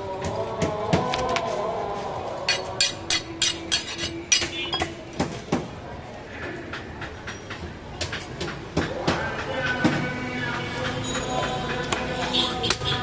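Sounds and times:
background voices: 0.0 - 5.2, 8.5 - 13.0.

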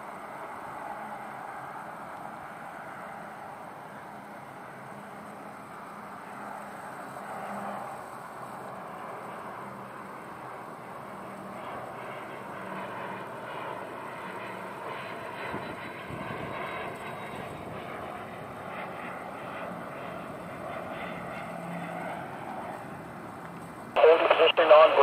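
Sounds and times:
jet engine rush and whine: 0.0 - 25.0.

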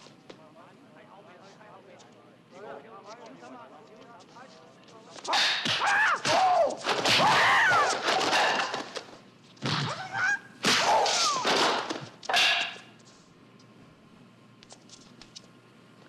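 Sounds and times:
punch and kick impacts: 5.3 - 8.9, 10.6 - 12.8.

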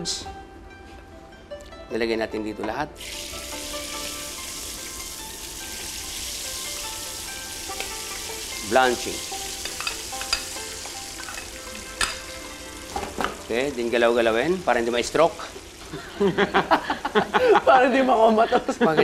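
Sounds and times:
seafood sizzling in hot oil: 3.0 - 17.3.

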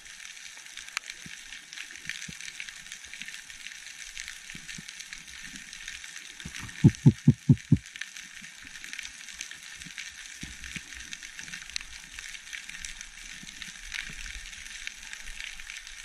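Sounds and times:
low thumps: 6.7 - 7.8.

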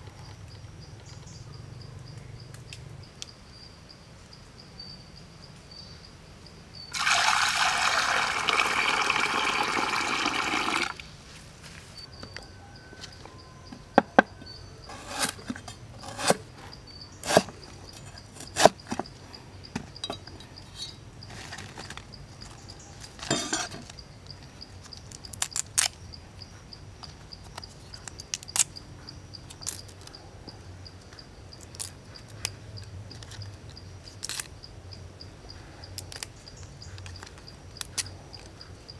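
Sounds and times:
insects chirring: 0.0 - 38.9
water poured into pot: 6.9 - 11.0.

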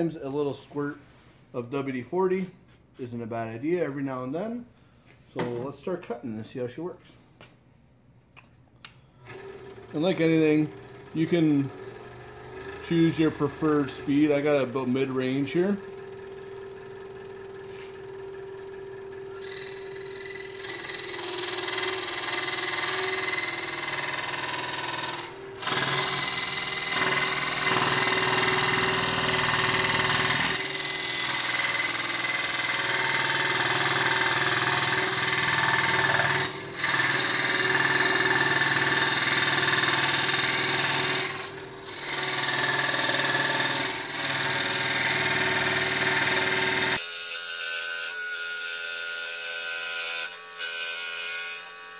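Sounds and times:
scroll saw hum: 9.2 - 42.5
saw blade rasping through metal: 19.3 - 51.9.

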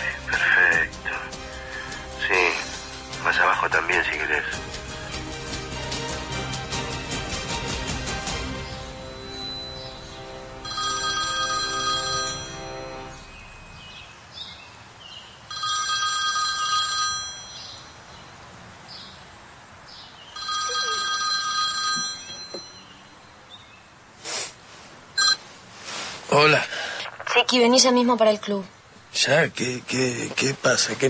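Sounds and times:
background music: 0.0 - 14.0
telephone ringing: 10.5 - 13.2, 15.5 - 17.9, 20.4 - 23.0, 25.2 - 25.4.

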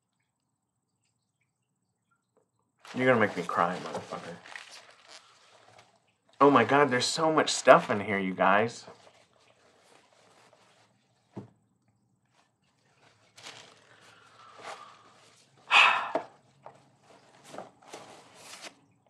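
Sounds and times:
packaging and paper rustling: 2.9 - 6.0, 8.9 - 11.3, 12.3 - 15.6, 17.0 - 18.8.

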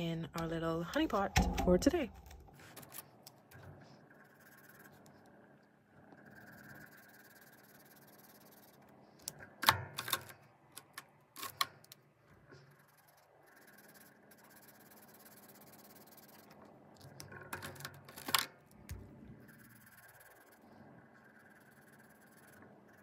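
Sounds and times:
marker rubbing on paper: 3.8 - 5.4, 6.2 - 9.2, 12.5 - 16.9, 19.0 - 23.0
marker caps snapping: 9.2 - 12.0.

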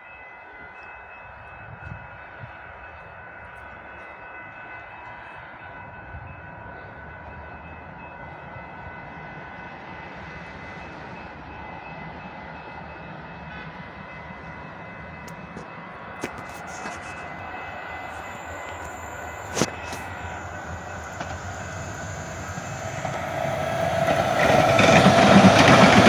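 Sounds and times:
high whining tones: 17.2 - 26.0.

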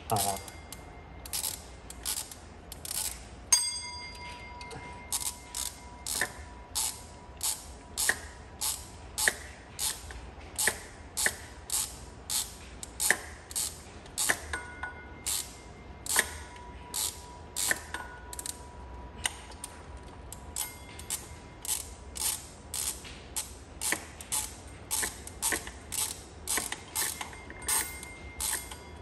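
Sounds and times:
hand ratchet clicking: 0.1 - 3.2, 4.1 - 14.7, 15.3 - 18.6, 20.3 - 29.0
sharp metallic clink: 3.5 - 6.3.

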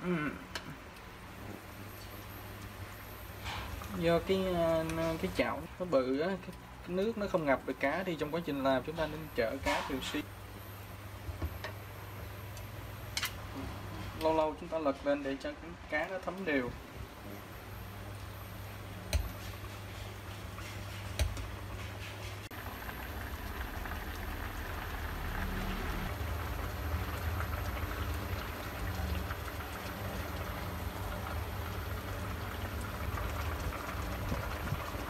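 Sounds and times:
sauce bubbling in a pan: 22.4 - 35.0.

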